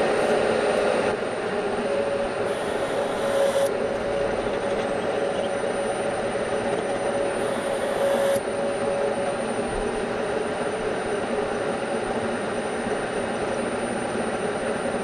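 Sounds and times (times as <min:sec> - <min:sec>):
milling machine whirring: 0:01.0 - 0:08.4.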